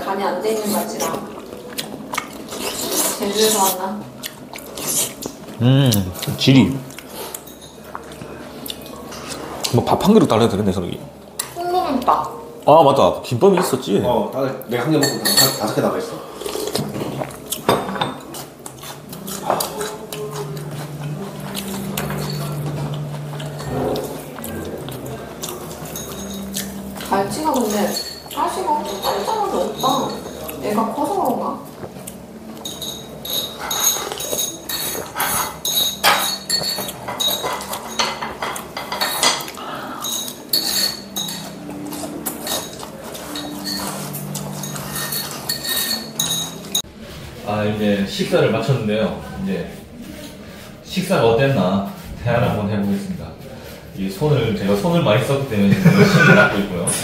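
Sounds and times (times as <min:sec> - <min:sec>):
tableware clinking: 0:07.1 - 0:08.2, 0:14.8 - 0:31.2, 0:32.5 - 0:46.9.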